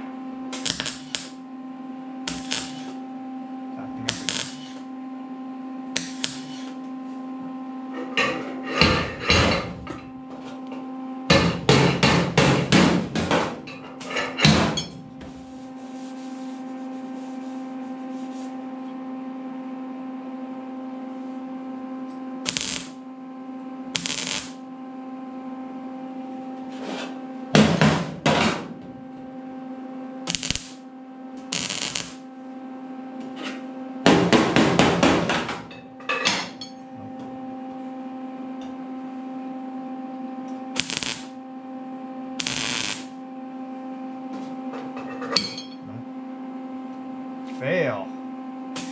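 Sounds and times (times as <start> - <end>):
steady hum: 0.0 - 48.9
welder tack-welding: 0.5 - 1.4, 2.2 - 3.0, 4.0 - 4.9, 5.9 - 6.8, 11.3 - 16.5, 22.4 - 23.0, 23.9 - 24.6, 30.3 - 30.8, 31.4 - 32.2, 40.8 - 41.4, 42.4 - 43.2.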